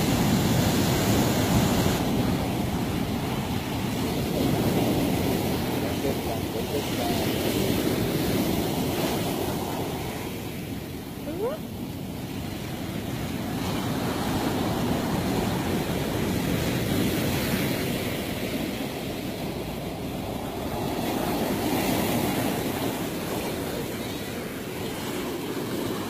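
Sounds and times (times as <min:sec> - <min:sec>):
ocean surf breaking on beach: 0:00.0 - 0:26.0.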